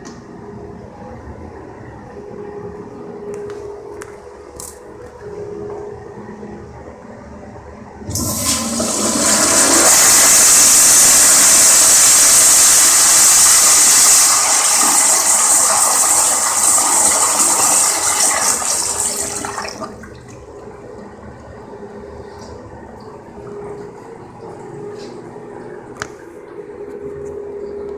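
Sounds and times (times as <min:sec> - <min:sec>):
toilet flushing water rush: 0:08.0 - 0:20.8.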